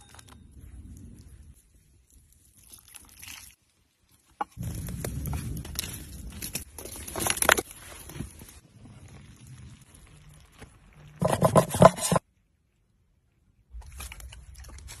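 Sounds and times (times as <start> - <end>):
wood fire crackling: 3.9 - 11.3.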